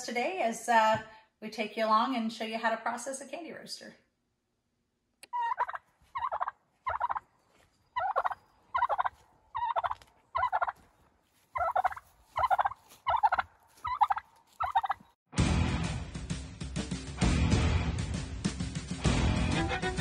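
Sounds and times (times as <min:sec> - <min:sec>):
turkey gobbling: 0:05.2 - 0:07.2, 0:08.0 - 0:10.9, 0:11.5 - 0:15.1.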